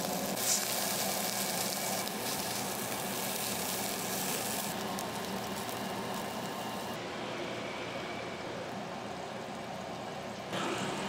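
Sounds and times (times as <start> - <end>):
meat sizzling on grill: 0.0 - 7.0.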